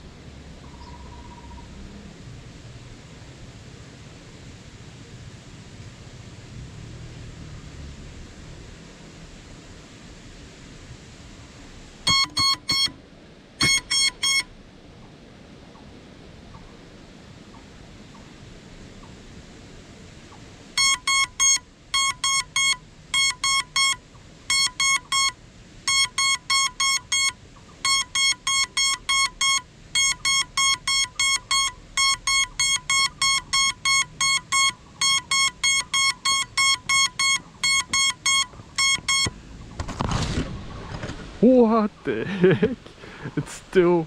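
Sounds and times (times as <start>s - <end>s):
high short beeps: 12.1s - 13.0s, 13.6s - 14.5s, 20.8s - 39.4s.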